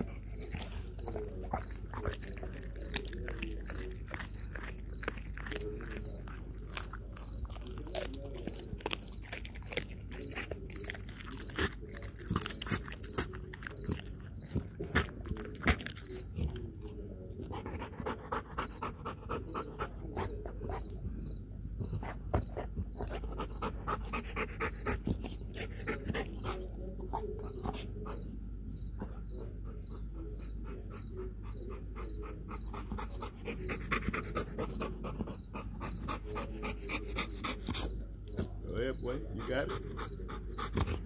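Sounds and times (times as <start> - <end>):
dog panting hard: 17.4 - 21.0, 21.8 - 28.3, 29.0 - 41.0.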